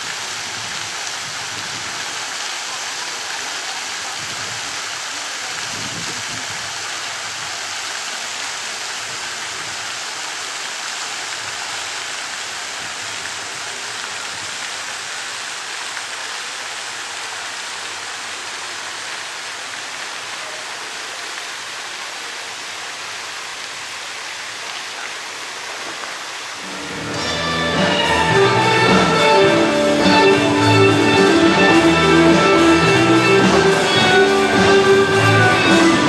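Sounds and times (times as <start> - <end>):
instrumental guitar music: 26.6 - 36.0.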